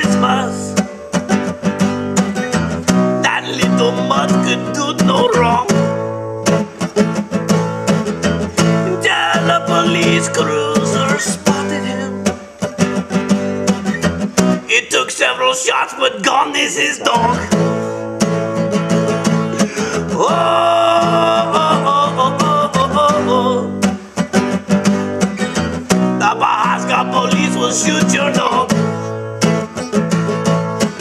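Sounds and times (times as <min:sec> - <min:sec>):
wavering melodic line: 0:00.0 - 0:02.6
acoustic guitar strumming: 0:00.0 - 0:31.0.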